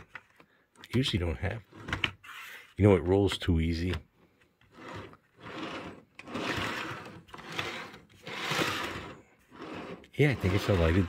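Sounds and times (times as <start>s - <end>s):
model train wheels rolling: 4.7s - 11.0s.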